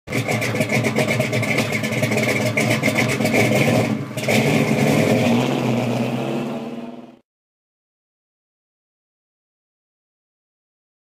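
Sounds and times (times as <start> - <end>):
car engine revving: 0.1 - 7.2.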